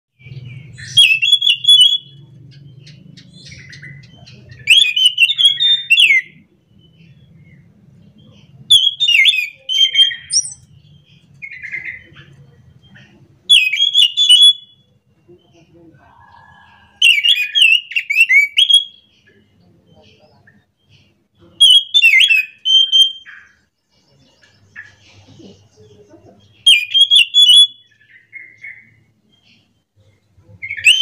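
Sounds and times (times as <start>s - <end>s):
thrush singing whistled phrases: 0.2s - 2.3s, 2.9s - 7.7s, 8.7s - 10.7s, 13.5s - 15.0s, 16.5s - 19.1s, 21.6s - 23.5s, 26.6s - 28.9s, 30.6s - 31.0s.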